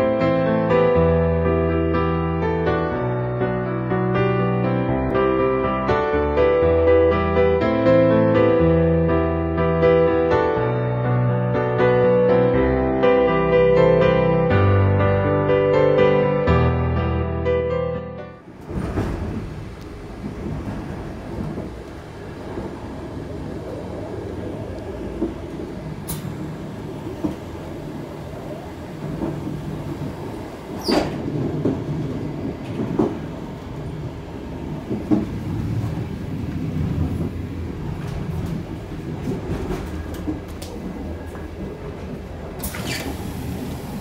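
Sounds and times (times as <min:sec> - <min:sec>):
train rumbling: 0:18.4 - 0:44.0
train knocks and clanks: 0:18.5 - 0:44.0.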